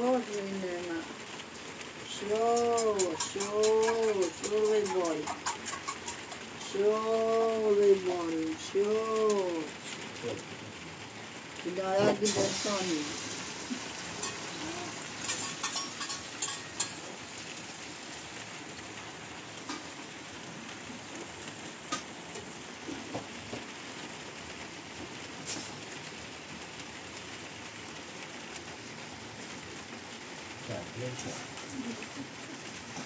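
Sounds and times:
soft steady hiss: 0.0 - 33.0
metal cookware clinking: 14.1 - 14.6, 15.2 - 17.2.

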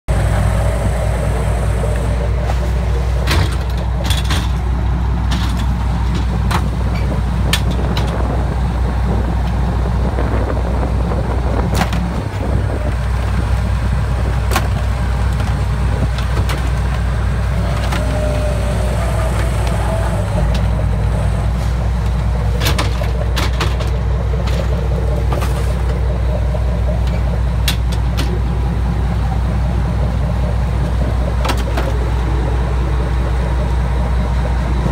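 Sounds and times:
boat engine humming: 0.0 - 34.9
traps knocking and clanking: 3.0 - 8.4, 21.9 - 34.6.

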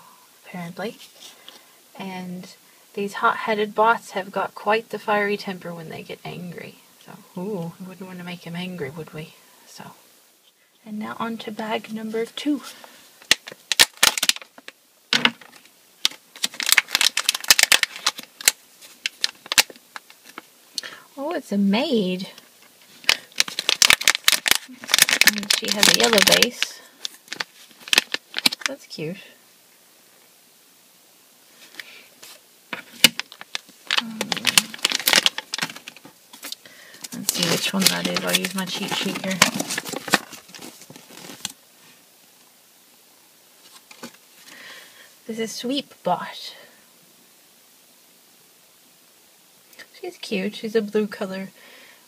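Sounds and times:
plastic packet crinkling: 13.2 - 20.5, 22.7 - 28.8, 31.6 - 41.6.

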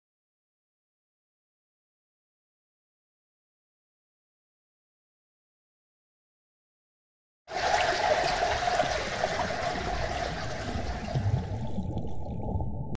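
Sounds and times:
running splashing water: 7.5 - 12.0.

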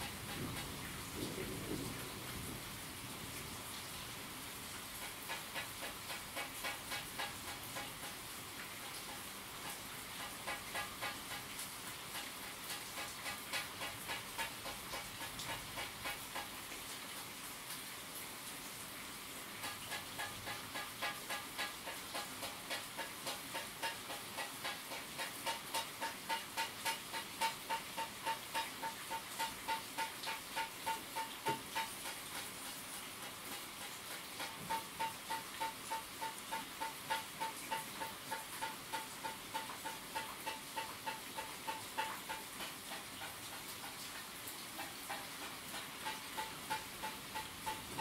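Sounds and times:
rain hiss: 0.0 - 48.0
regular ticks: 19.6 - 48.0
rapid even ticking: 44.8 - 48.0.

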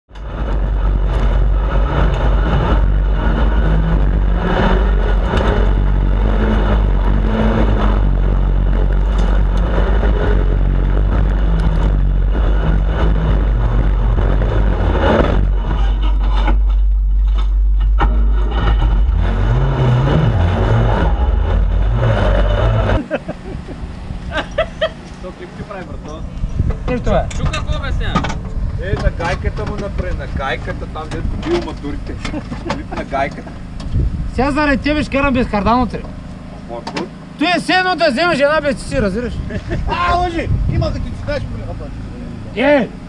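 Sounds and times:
buggy engine revving: 0.1 - 43.0
wind rumble on microphone: 25.5 - 31.9, 33.8 - 35.1, 38.9 - 41.6.

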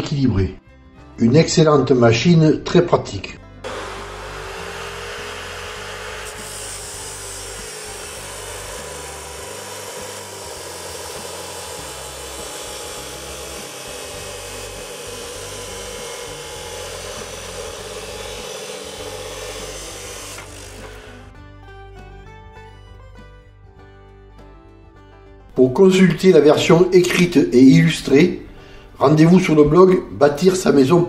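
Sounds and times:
cut-off saw grinding metal: 3.6 - 21.4.

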